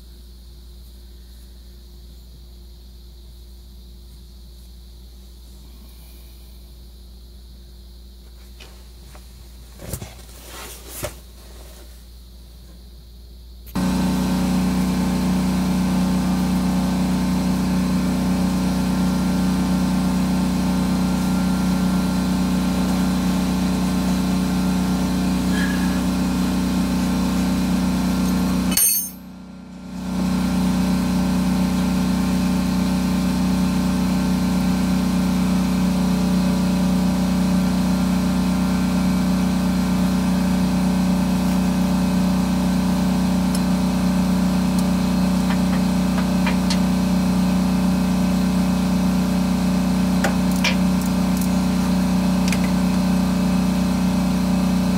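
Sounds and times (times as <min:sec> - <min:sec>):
air compressor motor humming: 0:13.7 - 0:54.9.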